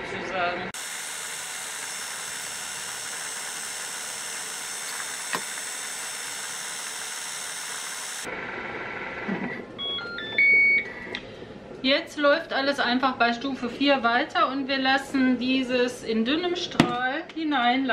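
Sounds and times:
food processor motor whining: 0.8 - 8.4.

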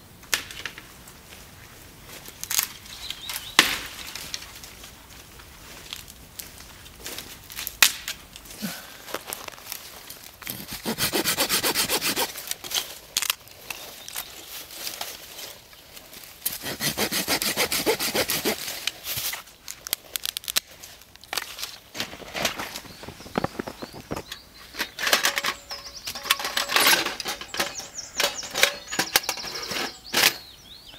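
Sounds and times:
stick cracking: 7.5 - 8.5
pruning saw cutting sticks: 10.0 - 15.3, 16.3 - 20.7
sticks clattering: 21.2 - 30.4.

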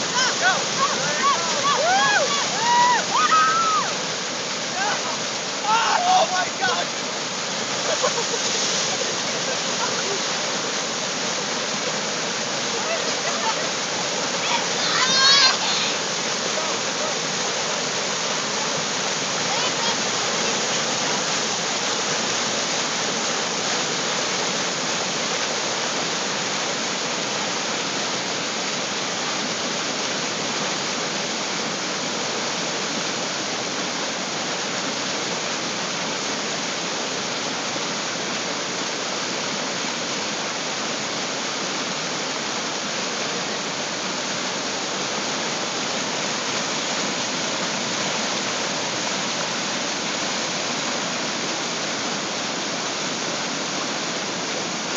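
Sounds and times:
rushing floodwater rapids: 0.0 - 54.9.

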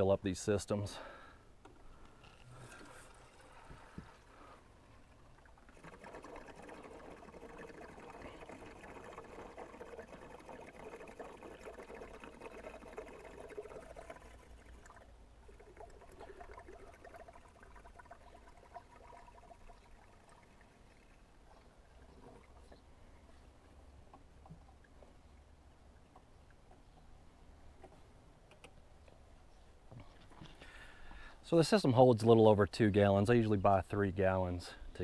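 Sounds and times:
liquid trickling into tank: 2.5 - 23.0.

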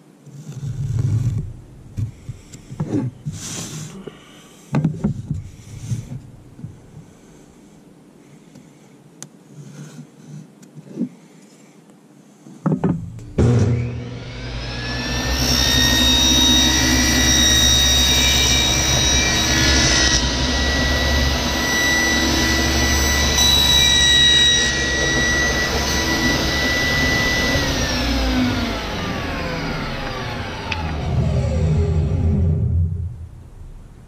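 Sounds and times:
table saw whining: 13.2 - 33.9.

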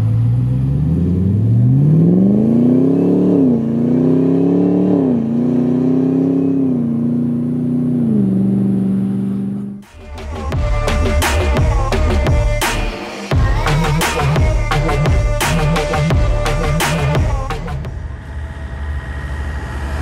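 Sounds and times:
car engine accelerating hard: 0.0 - 12.6.

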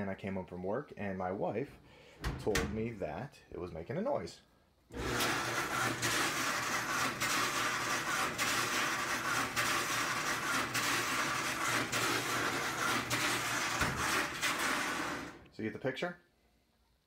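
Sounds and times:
scraping inside dryer drum: 5.0 - 15.4
clothes dryer rumbling: 5.0 - 15.5.

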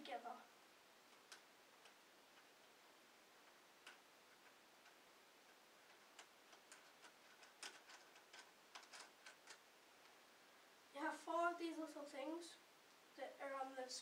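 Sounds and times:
faint plastic parts clicking: 1.0 - 10.2.

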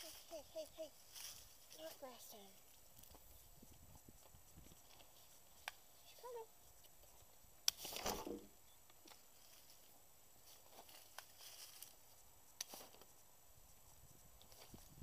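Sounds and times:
short rustle: 0.0 - 2.4, 10.4 - 12.0
sharp click: 6.8 - 9.2.

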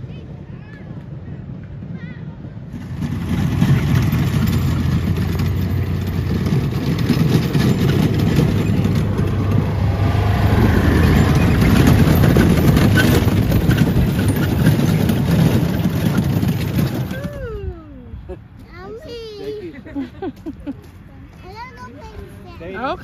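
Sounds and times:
cart wheels rolling over wood chips: 2.7 - 17.5
small vehicle engine: 2.7 - 17.6.

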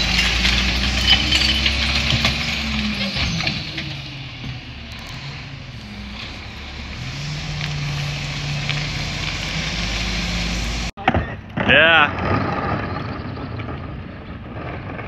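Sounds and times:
diesel truck engine running: 0.0 - 10.9.

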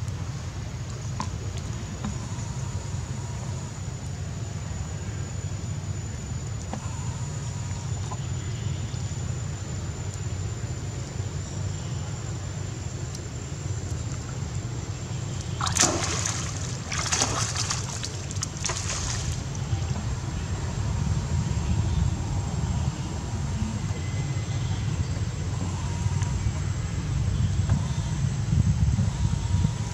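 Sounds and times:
monkey splashing through water: 15.6 - 19.6.

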